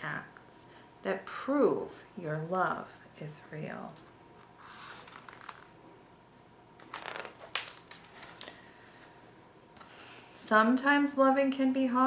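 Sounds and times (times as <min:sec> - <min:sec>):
book page rustling: 0:04.8 - 0:05.7, 0:06.8 - 0:08.6.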